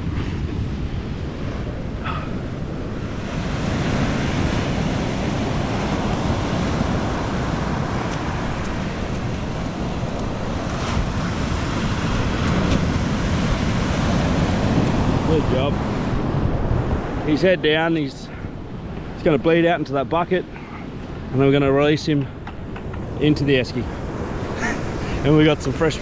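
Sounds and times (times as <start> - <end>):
surf breaking on beach: 0.0 - 18.1
wind on microphone: 0.0 - 19.8.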